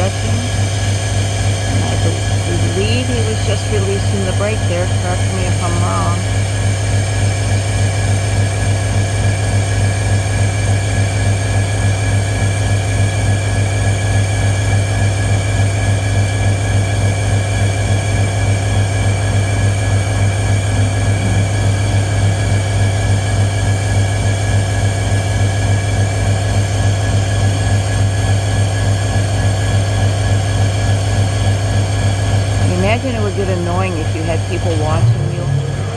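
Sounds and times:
diesel locomotive idling: 0:00.0 - 0:09.6, 0:17.0 - 0:35.9.

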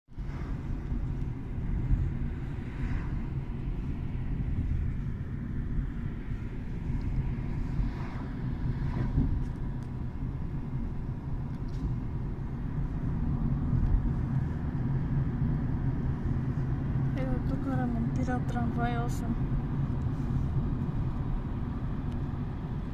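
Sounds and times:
engine and tyre rumble: 0:00.1 - 0:22.9
car passing by: 0:02.4 - 0:03.7, 0:07.1 - 0:09.6.

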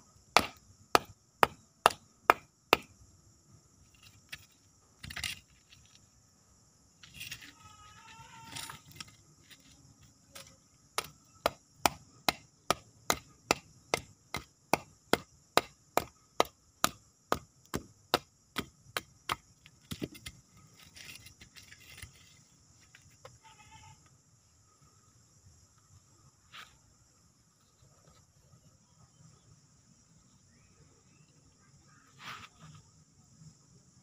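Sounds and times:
hand tool chopping roots and soil: 0:00.4 - 0:02.9, 0:10.4 - 0:22.1.

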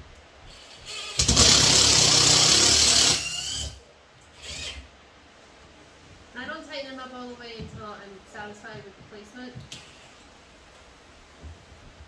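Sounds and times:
cordless drill motor running: 0:00.6 - 0:03.8, 0:04.4 - 0:04.9.

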